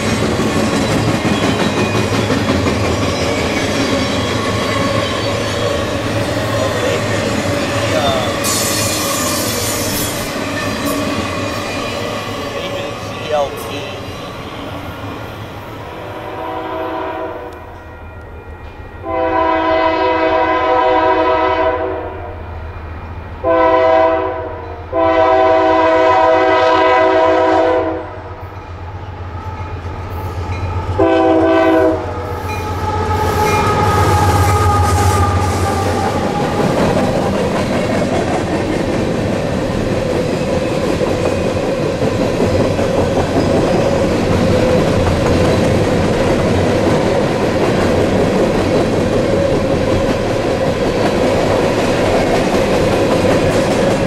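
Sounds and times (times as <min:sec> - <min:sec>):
train wheel clatter: 0:00.0 - 0:13.9, 0:32.4 - 0:54.0
diesel locomotive rumbling: 0:00.0 - 0:54.0
locomotive air horn blasts: 0:16.2 - 0:17.7, 0:19.0 - 0:22.3, 0:23.4 - 0:28.2, 0:31.0 - 0:35.9.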